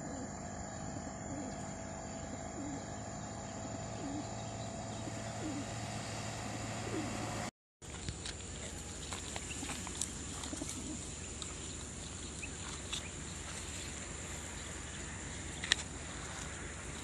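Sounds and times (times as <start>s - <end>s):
pigeons cooing: 0.0s - 7.5s, 10.4s - 11.2s.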